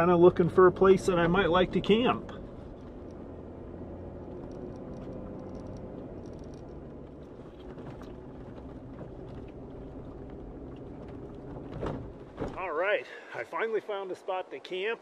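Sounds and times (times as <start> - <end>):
car engine hum: 0.0 - 12.6
tyre and road noise: 0.0 - 13.5
faint ticks and rattles: 4.2 - 12.5.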